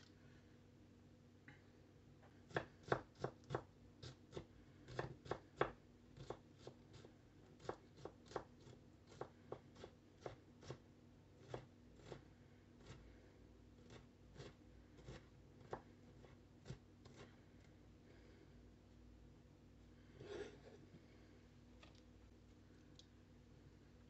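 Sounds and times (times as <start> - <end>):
knife chopping on wooden board: 2.5 - 3.7.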